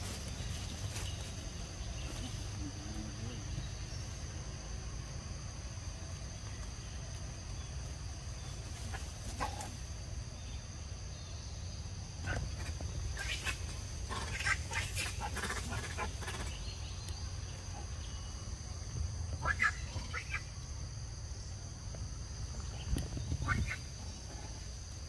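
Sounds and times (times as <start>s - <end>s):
rustling through undergrowth: 0.0s - 2.8s
high insect drone: 0.0s - 25.0s
monkeys squealing: 13.2s - 16.5s, 19.4s - 20.4s.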